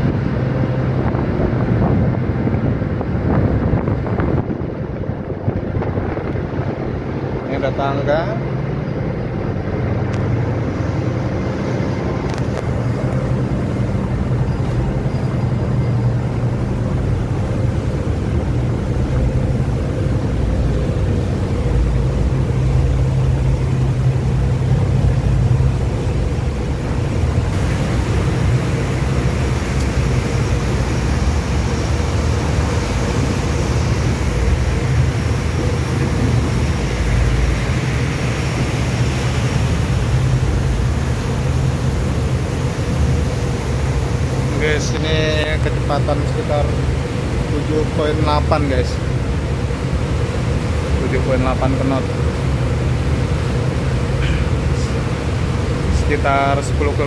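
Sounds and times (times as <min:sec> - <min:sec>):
ship engines droning: 0:00.0 - 0:57.0
rushing hiss: 0:27.5 - 0:46.0.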